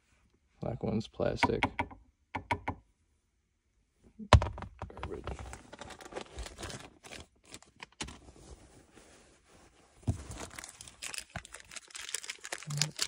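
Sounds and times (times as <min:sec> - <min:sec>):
hands handling car parts: 0:04.8 - 0:13.0.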